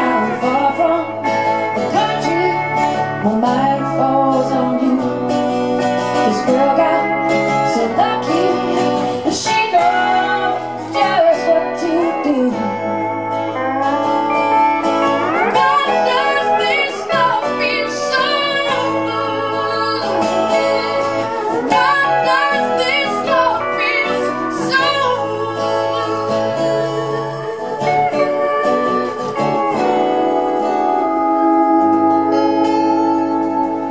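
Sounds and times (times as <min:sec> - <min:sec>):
woman singing: 0:00.0 - 0:14.4, 0:15.0 - 0:33.9
guitar accompaniment: 0:00.0 - 0:33.9
bass line: 0:09.8 - 0:33.9.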